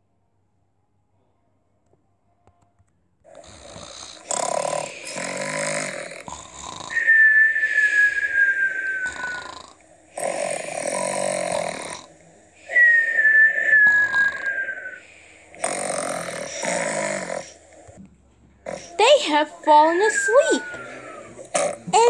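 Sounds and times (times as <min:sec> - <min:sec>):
cartoon snoring: 0:03.3 - 0:17.6, 0:18.6 - 0:22.0
long descending whistle: 0:07.0 - 0:09.6, 0:12.7 - 0:15.0.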